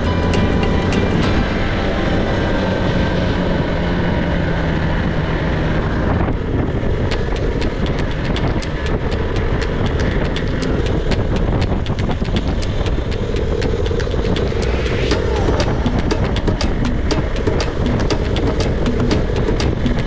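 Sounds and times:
wind on microphone: 0.0 - 20.0
motorcycle engine running: 6.3 - 20.0
fast ticking: 7.0 - 20.0.

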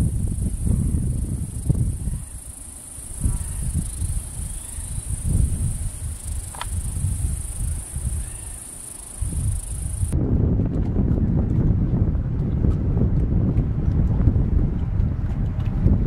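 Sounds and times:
insect buzzing: 0.0 - 10.2
wind on microphone: 0.0 - 16.0.

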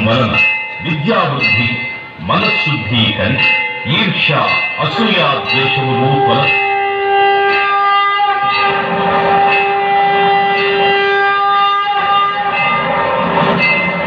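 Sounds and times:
devotional music: 0.0 - 14.0
ringing bells: 0.0 - 14.0
conch shell blast: 4.9 - 13.4.

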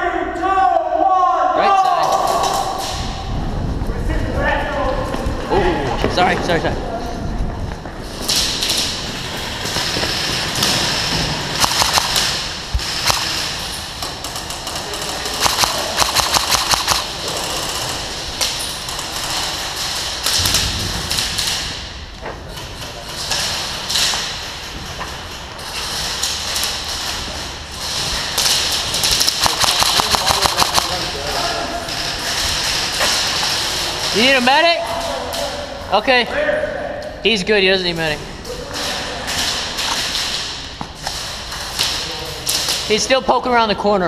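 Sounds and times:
airsoft gun shots: 11.6 - 13.6, 15.4 - 17.1, 29.0 - 31.0.

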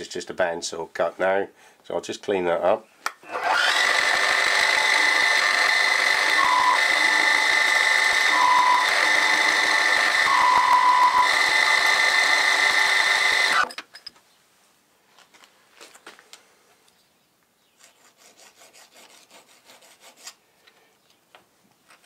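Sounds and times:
milling machine high whine: 3.3 - 13.7.

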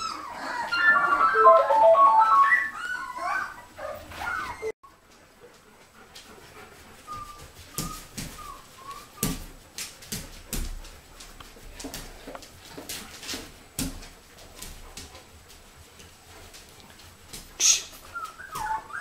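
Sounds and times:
puppies squeaking: 0.0 - 4.8, 18.1 - 19.0
dog claws on tiled floor: 7.7 - 19.0.

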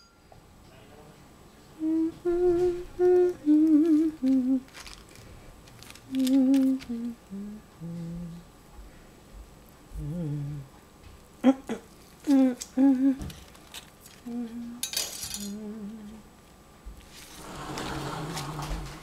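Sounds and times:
person humming: 1.8 - 4.8, 6.0 - 8.5, 9.9 - 10.8, 11.4 - 13.4, 14.1 - 16.3.

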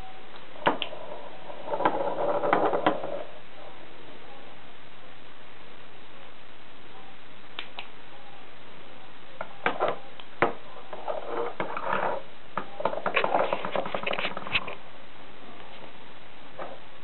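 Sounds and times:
objects knocking and scraping on table: 1.7 - 3.2, 9.6 - 14.8.

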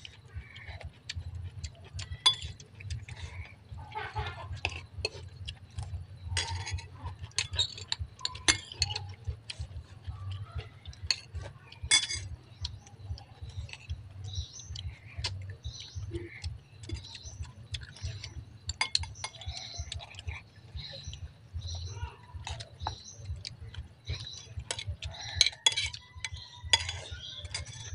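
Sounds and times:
steady low hum: 0.0 - 27.9
cutlery clinking on plates: 2.2 - 2.6, 6.4 - 9.0, 11.1 - 12.3, 16.8 - 20.4, 24.2 - 27.9.

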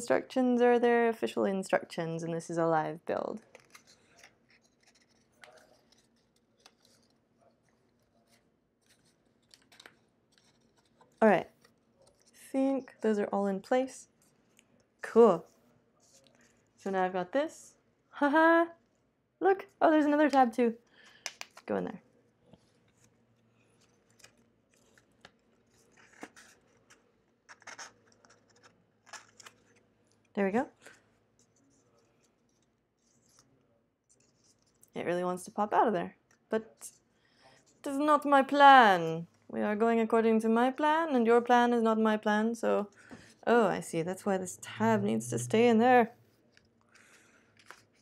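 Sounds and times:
card stock rustling and clicking: 3.4 - 12.4, 22.6 - 29.8, 46.5 - 48.0.

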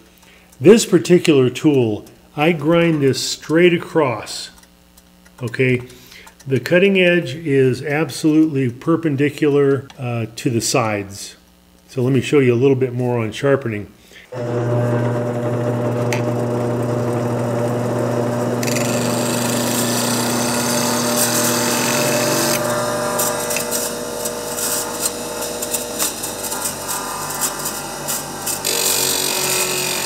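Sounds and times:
bench grinder motor hum: 14.3 - 30.0
metal grinding on wheel: 14.4 - 30.0.

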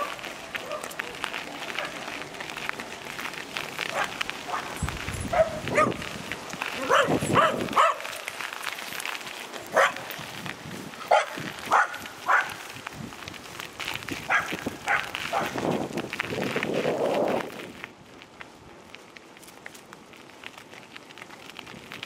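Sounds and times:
dog barking: 0.0 - 0.9, 3.9 - 4.7, 5.3 - 6.0, 6.8 - 8.1, 9.7 - 10.0, 11.1 - 12.6, 14.3 - 15.6.

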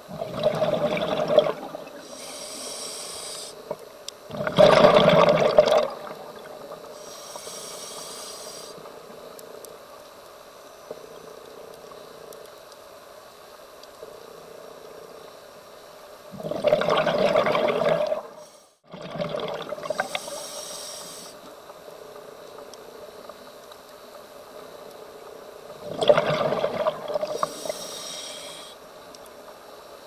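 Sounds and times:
exhaled bubbles rushing: 0.1 - 2.1, 4.3 - 6.8, 16.4 - 18.3, 18.9 - 20.1, 25.8 - 27.4
regulator inhalation hiss: 2.0 - 3.7, 6.9 - 9.0, 18.3 - 18.8, 19.9 - 21.5, 27.2 - 28.9.

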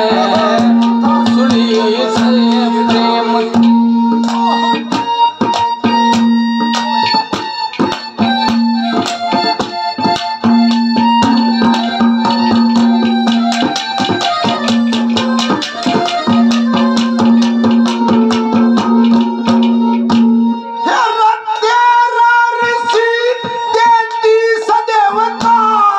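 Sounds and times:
keyboard drone note: 0.0 - 7.3.

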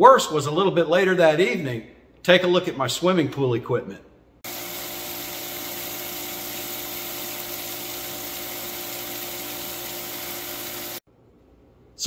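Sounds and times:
pool pump humming: 4.5 - 11.0.

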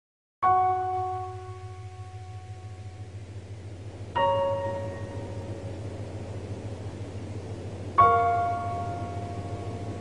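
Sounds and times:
bell-like chime: 0.4 - 2.8, 4.2 - 5.7
low pulsing hum: 0.4 - 10.0.

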